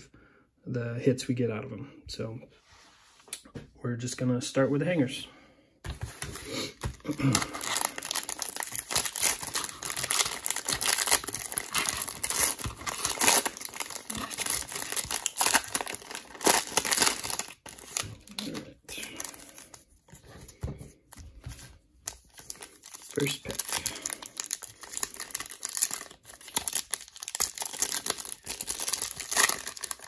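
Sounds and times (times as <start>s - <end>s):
plastic wrapper crinkling: 6.2s - 20.2s, 21.1s - 30.0s.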